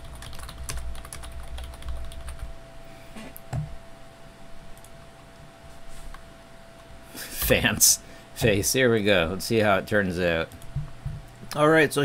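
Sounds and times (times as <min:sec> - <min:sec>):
computer keyboard clicks: 0:00.0 - 0:02.4
faint steady hum: 0:00.0 - 0:12.0.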